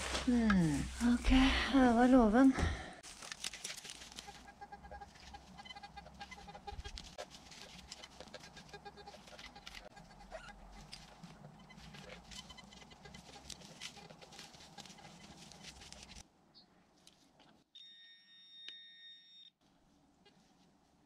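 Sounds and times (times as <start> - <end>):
footsteps through grass: 3.0 - 16.2
metal detector high beep: 17.8 - 19.5.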